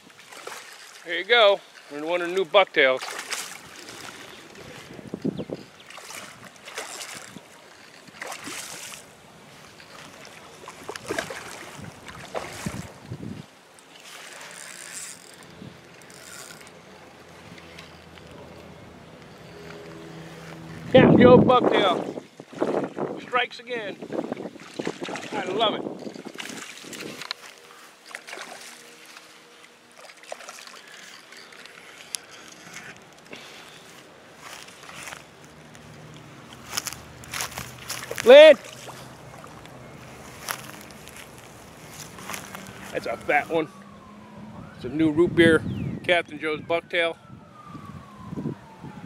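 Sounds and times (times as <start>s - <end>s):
fish splashing in water: 0.0s - 1.8s, 3.0s - 5.0s, 5.7s - 13.1s, 26.1s - 32.1s.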